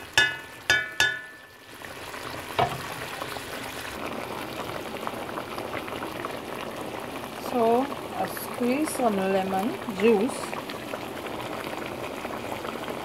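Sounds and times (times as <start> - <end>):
curry bubbling in pot: 0.0 - 13.0
metal clinks against pot: 0.2 - 1.5.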